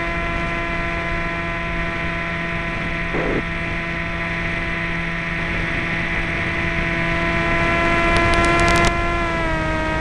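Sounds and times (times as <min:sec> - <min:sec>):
model aircraft motor and propeller: 0:00.0 - 0:10.0
short crackles: 0:08.0 - 0:08.9.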